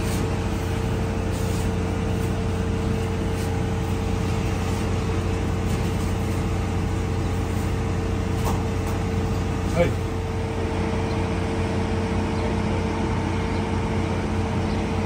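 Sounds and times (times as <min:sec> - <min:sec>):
machinery drone: 0:00.0 - 0:15.0.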